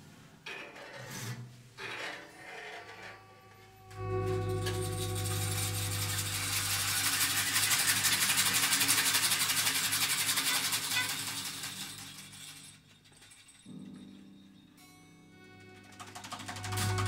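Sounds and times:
ensemble rattling and scraping: 0:01.8 - 0:11.1
single low note: 0:03.8 - 0:07.7.

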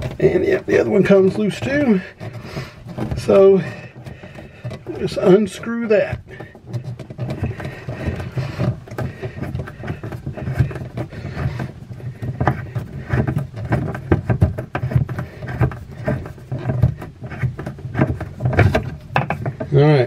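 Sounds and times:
plastic nut scraping and clicking: 0:00.0 - 0:20.0.

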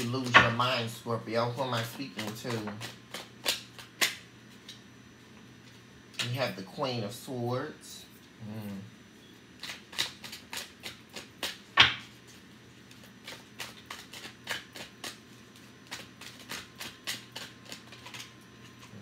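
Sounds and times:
cards being shuffled: 0:01.7 - 0:04.7, 0:09.6 - 0:19.0.

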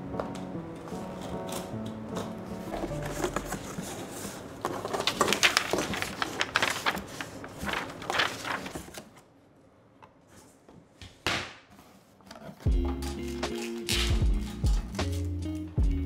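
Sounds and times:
paper and cardboard rustling: 0:00.8 - 0:09.2.

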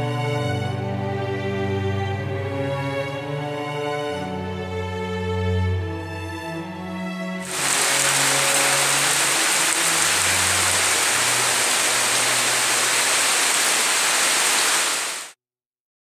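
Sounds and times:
heavy rain on water and foliage: 0:07.4 - 0:15.4.

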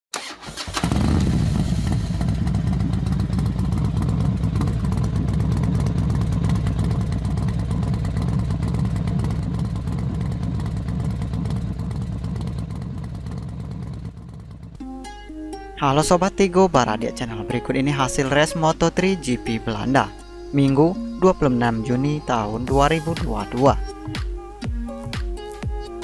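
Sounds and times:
motorcycle engine running: 0:00.6 - 0:26.0.

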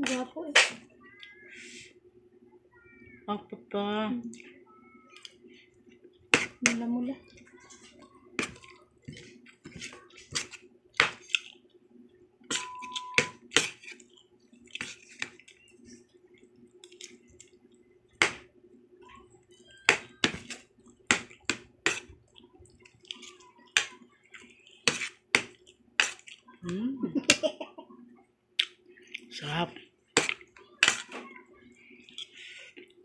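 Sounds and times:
faint steady hum: 0:00.0 - 0:33.0
person chewing: 0:07.6 - 0:11.6, 0:12.6 - 0:17.8, 0:20.1 - 0:26.6, 0:28.6 - 0:29.3.

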